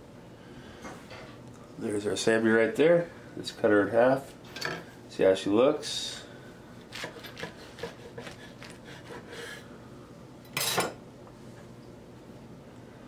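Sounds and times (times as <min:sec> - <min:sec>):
knife sawing through bread: 0:06.9 - 0:09.6.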